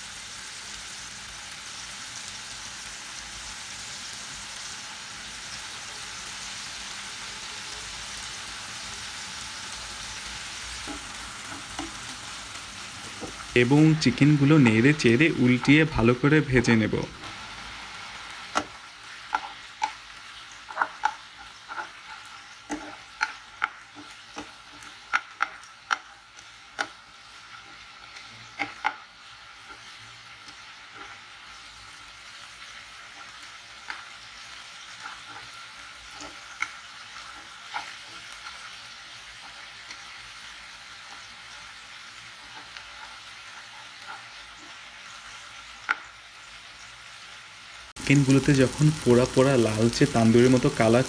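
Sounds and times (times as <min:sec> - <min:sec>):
chicken sizzling in frying pan: 0:00.0 - 0:51.0
spatula tapping pan: 0:20.7 - 0:27.0.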